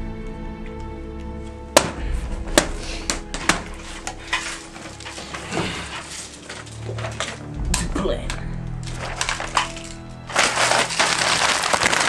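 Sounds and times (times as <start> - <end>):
hard objects clattering: 1.8 - 12.0.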